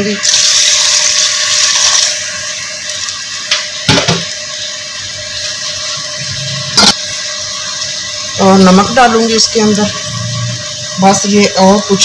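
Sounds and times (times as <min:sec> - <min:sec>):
water pouring into a pot: 0:00.0 - 0:03.5.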